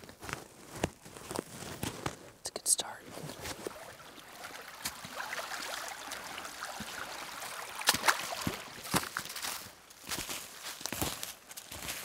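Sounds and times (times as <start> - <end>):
stream trickling over rocks: 2.7 - 10.6.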